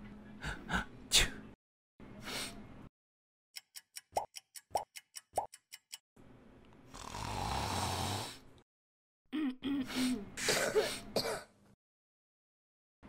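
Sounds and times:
quick ticks: 3.6 - 6.0.

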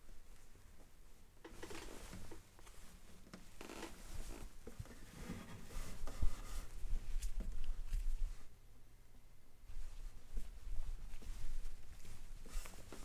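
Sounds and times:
hands and sleeve rustling: 0.0 - 8.5, 9.7 - 13.0.

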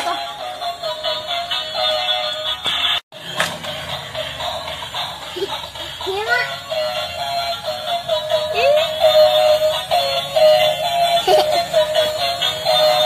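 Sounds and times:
toy truck electronic song: 0.0 - 13.0.

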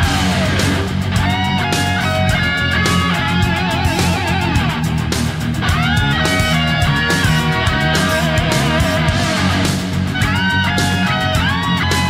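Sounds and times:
rock music with electric guitar: 0.0 - 12.0.

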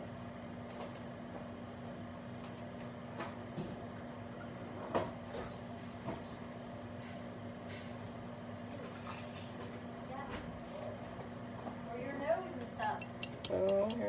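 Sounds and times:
microwave oven humming: 0.0 - 14.0.

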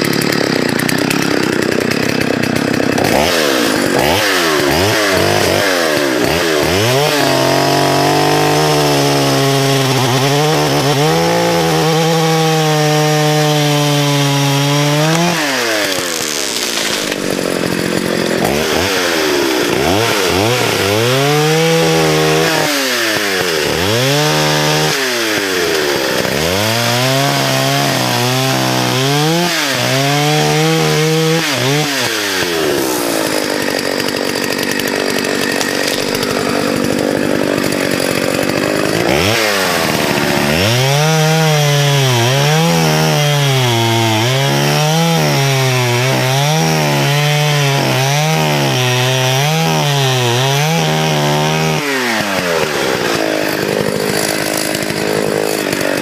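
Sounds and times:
chainsaw cutting at full throttle: 0.0 - 56.0.

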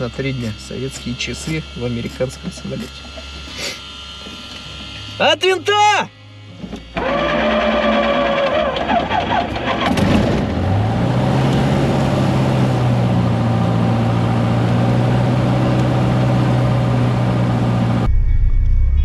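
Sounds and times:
aircraft engine starting and idling: 6.2 - 19.0.

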